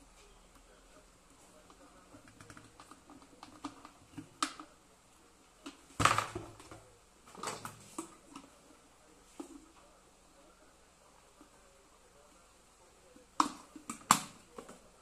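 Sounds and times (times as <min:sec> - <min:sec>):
small clicks and taps: 0:01.6 - 0:04.7.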